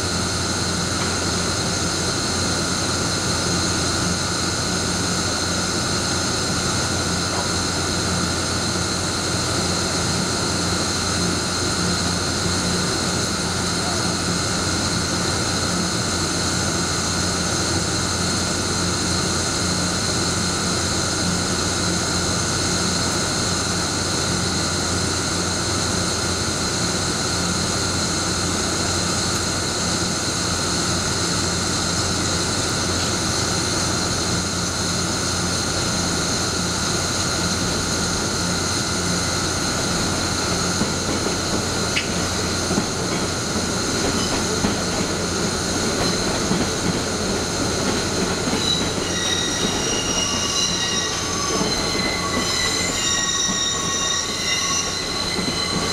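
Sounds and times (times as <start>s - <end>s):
locomotive blowers whirring hum: 27.5s - 55.9s
high whines: 45.8s - 55.9s.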